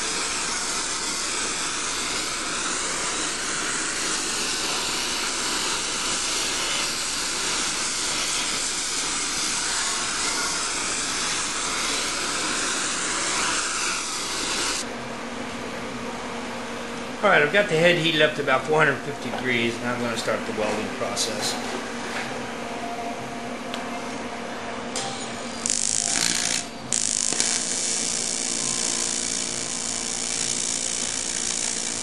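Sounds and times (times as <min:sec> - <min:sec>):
torch flame hissing: 0:00.0 - 0:14.8, 0:25.6 - 0:32.0.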